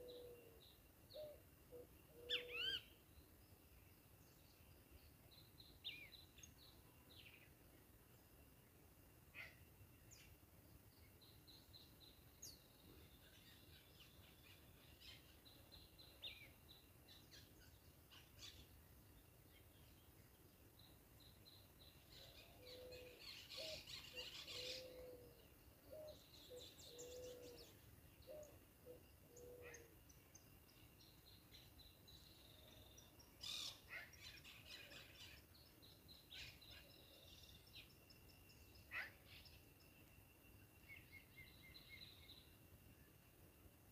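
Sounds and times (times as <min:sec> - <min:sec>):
birds chirping and trilling: 0:00.0 - 0:03.4, 0:09.3 - 0:20.1, 0:20.8 - 0:40.2, 0:40.8 - 0:42.6
short low repeated bird calls: 0:00.0 - 0:03.4, 0:19.5 - 0:40.1
quiet outdoor ambience: 0:00.0 - 0:43.9.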